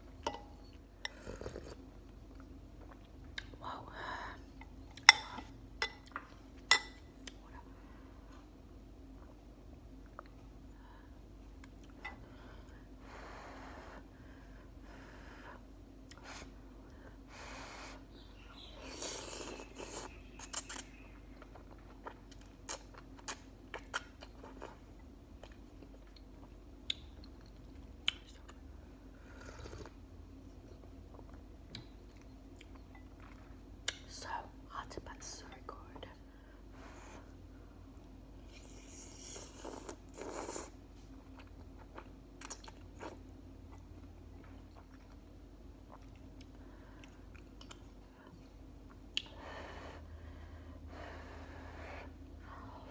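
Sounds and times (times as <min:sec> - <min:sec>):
chewing with wet mouth clicks: 0:19.4 - 0:28.6, 0:30.6 - 0:34.1, 0:41.3 - 0:49.3.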